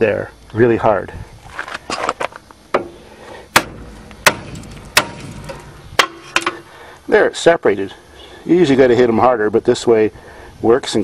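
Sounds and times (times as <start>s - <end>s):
hammer striking metal: 2.8s - 6.6s.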